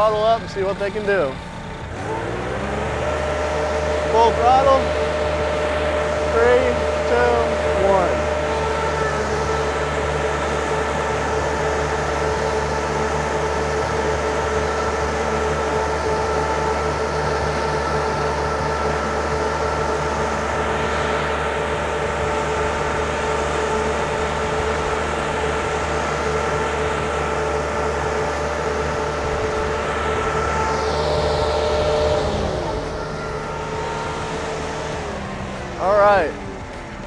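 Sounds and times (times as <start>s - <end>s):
engine drone: 0.0s - 37.0s.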